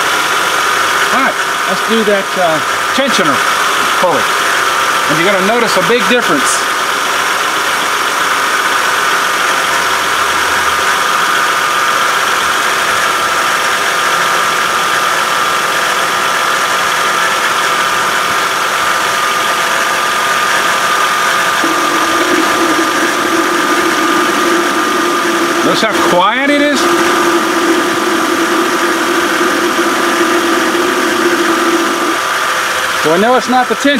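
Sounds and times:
car engine idling: 0:00.0 - 0:33.8
steady high tone: 0:20.6 - 0:33.2
lower steady tone: 0:21.6 - 0:32.2.

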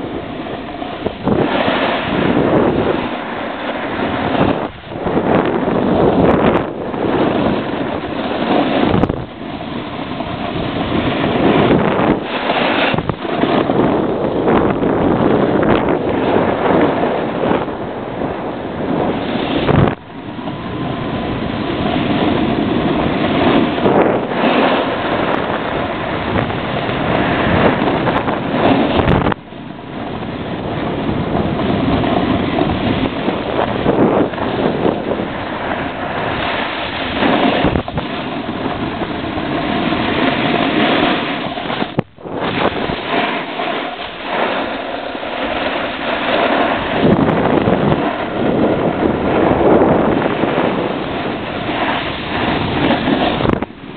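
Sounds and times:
snowboard scraping over snow: 0:00.0 - 0:53.9
wind rushing over microphone: 0:00.0 - 0:53.9.

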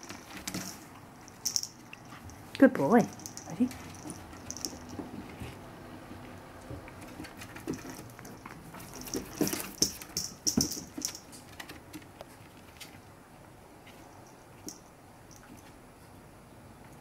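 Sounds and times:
paws clicking on wooden floor: 0:06.2 - 0:13.0.

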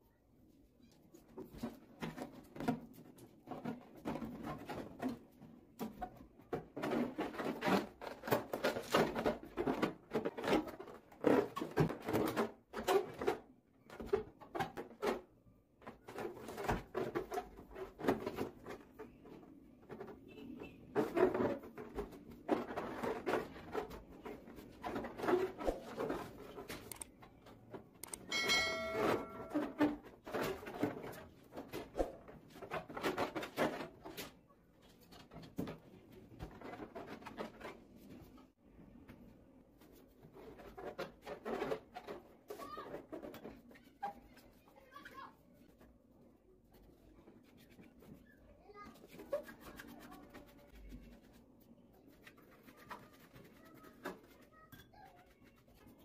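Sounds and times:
short ringing tone: 0:28.3 - 0:29.6
hands rubbing a rubber balloon: 0:39.6 - 0:56.0.

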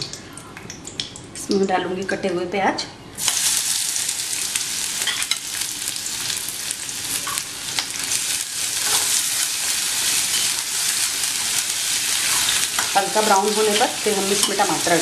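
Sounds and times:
onions sizzling in hot oil: 0:03.2 - 0:15.0.

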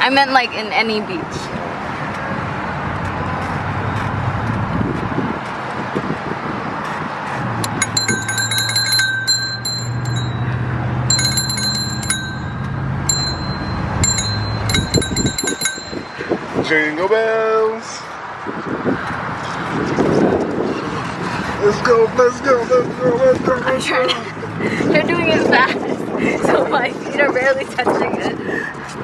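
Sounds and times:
bicycle bell dings: 0:07.6 - 0:16.6.

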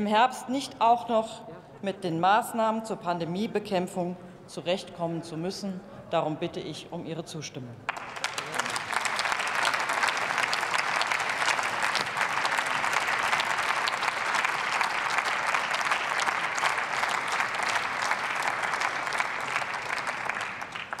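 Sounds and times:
crowd applauding: 0:07.9 - 0:21.0.

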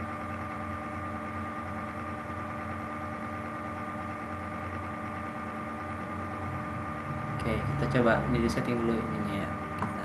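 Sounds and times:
background hum with held tones: 0:00.0 - 0:10.0.

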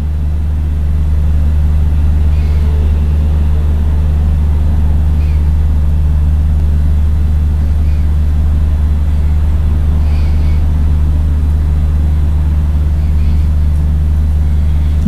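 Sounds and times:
loud steady low hum: 0:00.0 - 0:15.0.

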